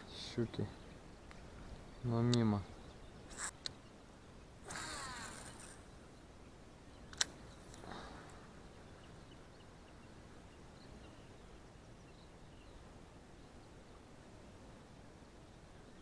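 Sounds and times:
open water ambience: 0.0 - 16.0
faint high bird chirps: 0.8 - 7.8
sharp click: 7.1 - 7.4.

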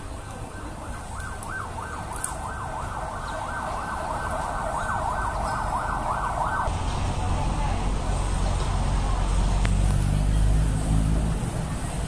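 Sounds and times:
crowd noise: 0.0 - 12.0
siren yelping: 0.6 - 6.7.

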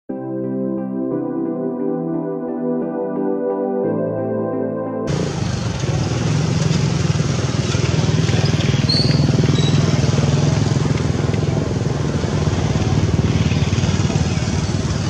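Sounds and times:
small engine running: 5.1 - 15.0.

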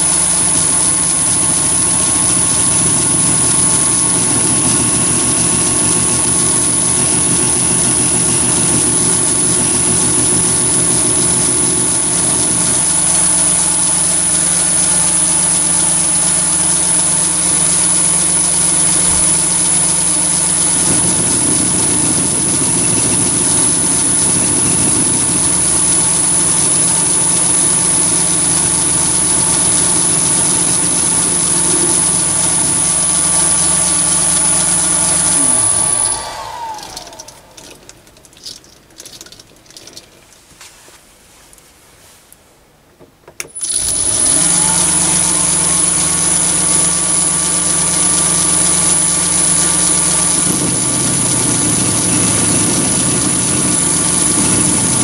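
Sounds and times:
high whine: 0.0 - 38.5
lathe motor humming: 0.0 - 38.5, 43.6 - 55.0
turning tool cutting metal: 0.0 - 38.6, 43.6 - 55.0.

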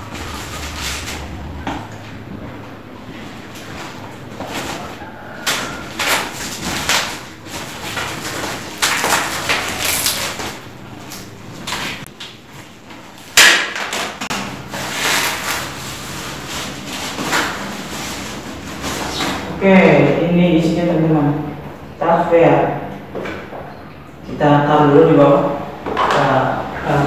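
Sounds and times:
packing tape ripping: 6.0 - 10.6.

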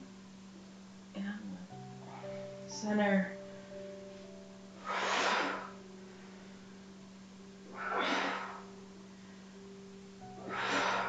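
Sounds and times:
faint low hum: 0.0 - 11.0
woman exhaling forcefully: 4.8 - 5.8, 7.7 - 8.7, 10.4 - 11.0.

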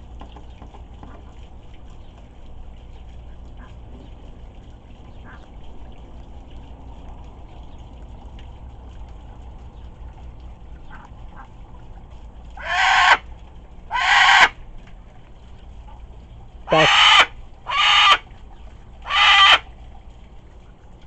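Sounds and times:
cockatoo squawking: 12.6 - 13.2, 13.9 - 14.6, 16.7 - 18.2, 19.0 - 19.6.

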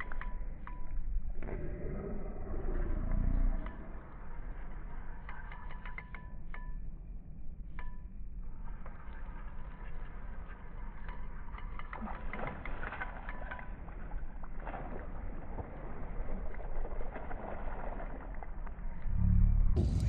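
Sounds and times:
light clicks and ticks: 0.0 - 1.6, 2.7 - 14.8
wind rumble on microphone: 13.4 - 20.0.

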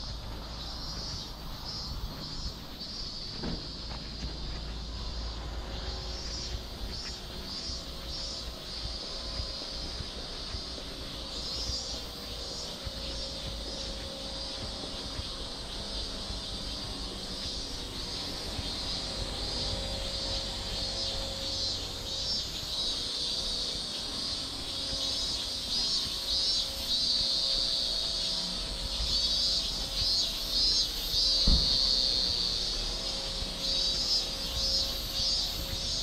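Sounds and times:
cicadas buzzing: 0.0 - 36.0
low thump: 3.3 - 3.9, 31.4 - 32.0.

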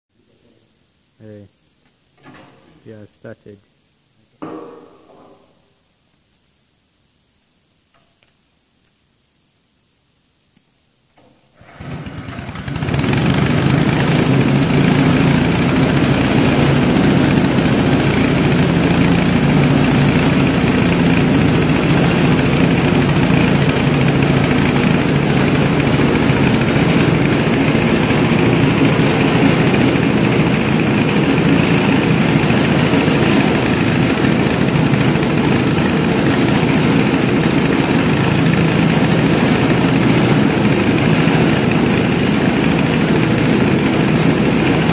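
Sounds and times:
small engine running thresher: 11.6 - 44.9.

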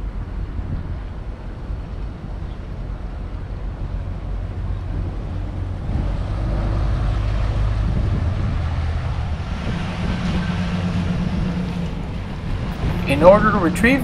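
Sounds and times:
pickup truck engine running: 4.2 - 14.0.

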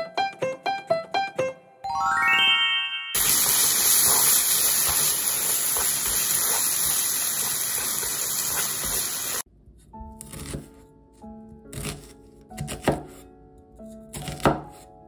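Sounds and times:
food sizzling in a frying pan: 3.2 - 9.4
light background music: 9.8 - 15.0.

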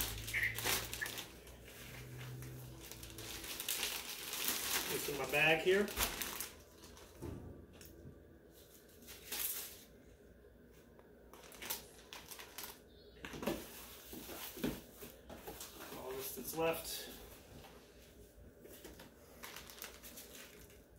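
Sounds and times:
plastic bag rustling: 0.0 - 7.2, 11.3 - 12.8, 18.7 - 20.9.

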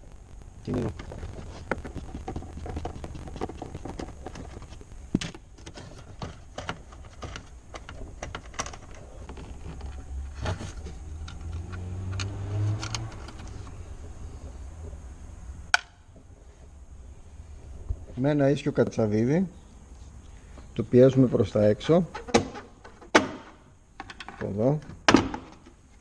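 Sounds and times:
low hum: 0.0 - 6.2, 7.5 - 18.2.

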